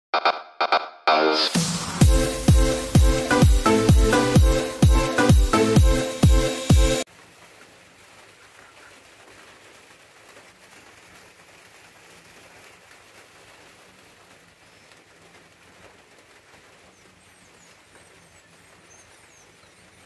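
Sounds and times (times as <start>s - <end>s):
light rain on river water: 7.0s - 20.0s.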